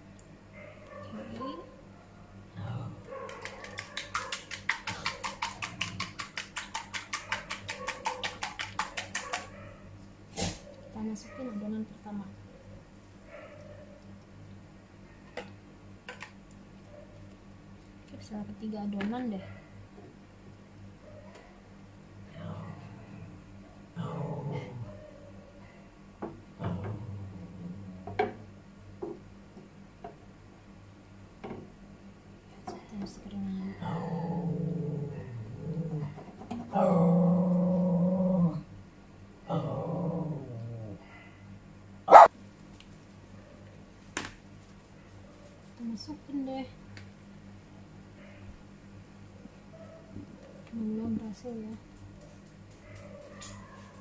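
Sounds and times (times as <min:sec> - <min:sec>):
low steady hum: 0:00.0 - 0:07.9, 0:09.4 - 0:54.0
fork beating batter in plastic bowl: 0:03.2 - 0:09.5.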